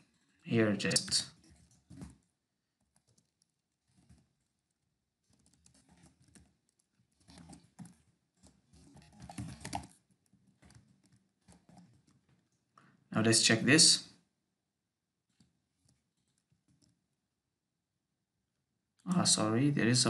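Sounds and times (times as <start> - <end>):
computer keyboard typing: 1.0 - 12.6, 15.3 - 17.0.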